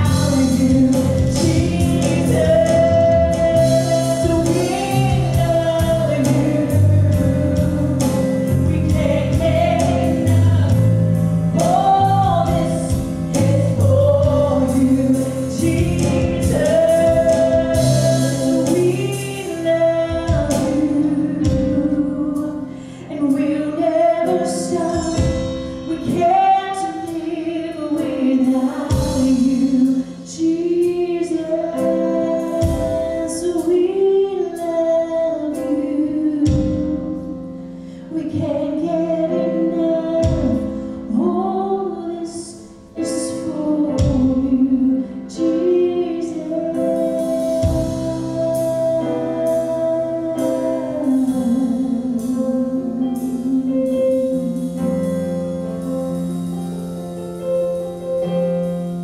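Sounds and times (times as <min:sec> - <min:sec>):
woman singing: 0:00.0 - 0:55.4
keyboard accompaniment: 0:00.0 - 0:59.0.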